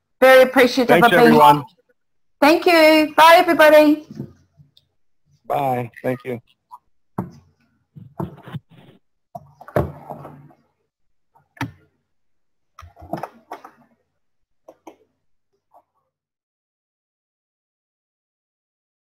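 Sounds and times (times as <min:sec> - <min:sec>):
muffled voice sounds: 0:00.9 - 0:01.7
thumps and knocks: 0:07.2 - 0:10.6.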